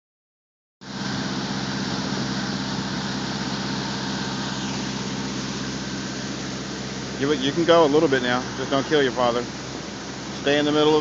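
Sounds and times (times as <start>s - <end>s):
motorboat engine running: 0.8s - 11.0s
water rushing: 0.8s - 11.0s
wind: 0.8s - 11.0s.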